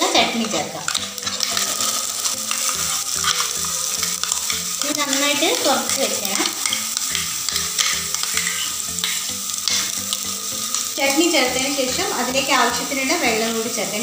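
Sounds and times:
oil sizzling in a pan: 0.0 - 14.0
spatula scraping a pan: 0.4 - 13.6.

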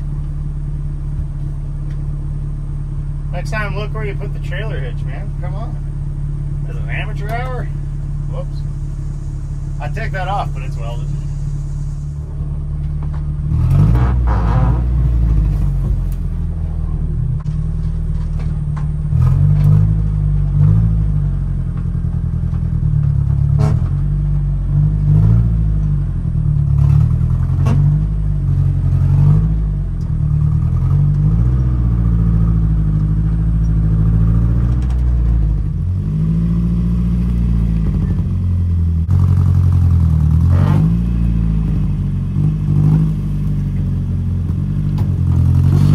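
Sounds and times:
suv engine revving under load: 6.0 - 45.9.

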